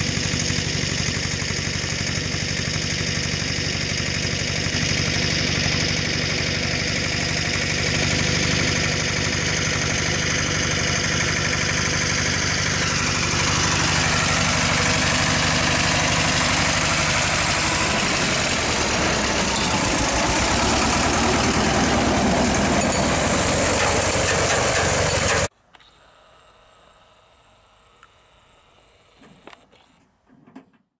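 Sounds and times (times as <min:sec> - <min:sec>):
manure spreader beaters clattering: 0:00.0 - 0:25.5
tractor diesel engine running: 0:00.0 - 0:25.5.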